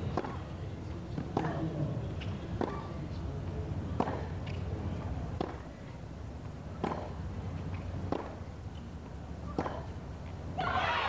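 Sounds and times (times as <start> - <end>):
tennis ball hit by racquets: 0.0 - 0.5, 1.1 - 3.0, 3.9 - 5.8, 6.7 - 8.9, 9.5 - 10.0
low murmur: 0.0 - 11.0.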